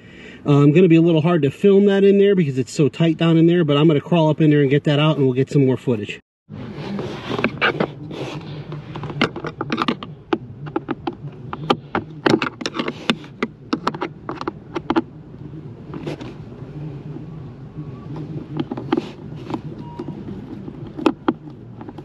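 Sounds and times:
steady low hum: 0.0 - 22.0
screwdriver clicking and scraping: 7.3 - 10.1, 10.7 - 15.1.

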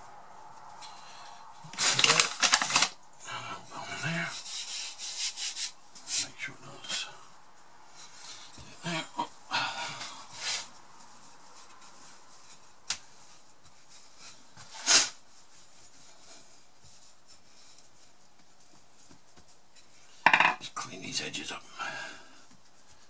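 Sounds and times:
hands rubbing pastry dough: 3.7 - 20.3, 21.9 - 23.0.

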